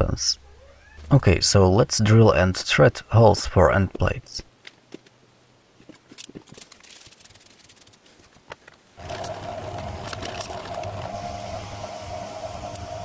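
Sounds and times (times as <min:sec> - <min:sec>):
drill press running: 0:09.0 - 0:13.0.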